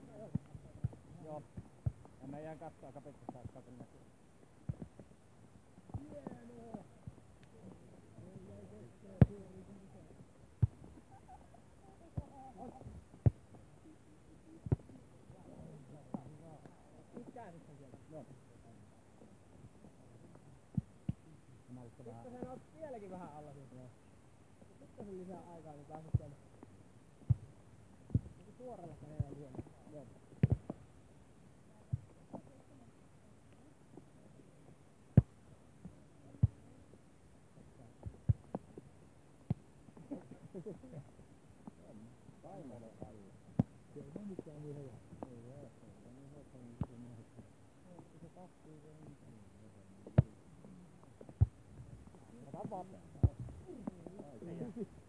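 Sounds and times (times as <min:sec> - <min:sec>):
hands slapping volleyball: 0:04.6 - 0:05.1, 0:12.2 - 0:13.6, 0:14.6 - 0:15.0, 0:30.4 - 0:30.8.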